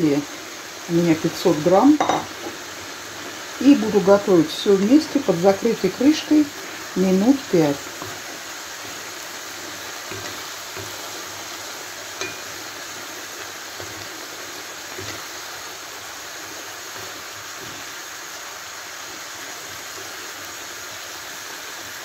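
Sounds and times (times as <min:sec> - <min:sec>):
food sizzling in a pan: 0:00.0 - 0:22.0
wooden spatula knocking pan: 0:01.9 - 0:02.6.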